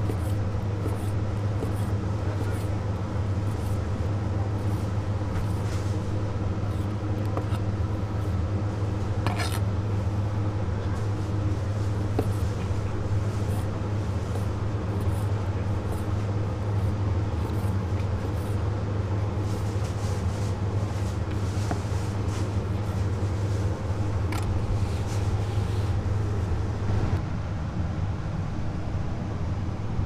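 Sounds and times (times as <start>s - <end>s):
knife cutting on wooden board: 0.0s - 2.8s, 6.8s - 7.7s, 9.2s - 9.6s, 12.1s - 16.1s
low mechanical hum: 0.0s - 30.0s.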